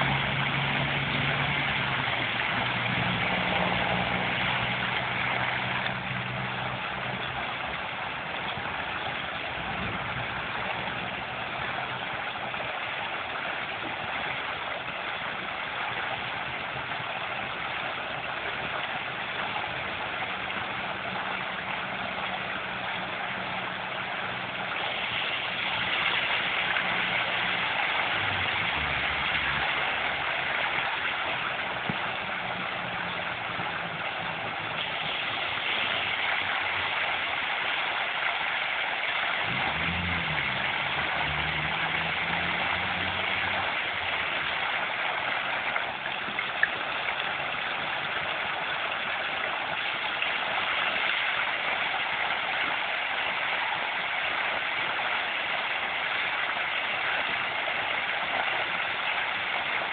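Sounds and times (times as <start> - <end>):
fountain water splashing: 0.0 - 59.9.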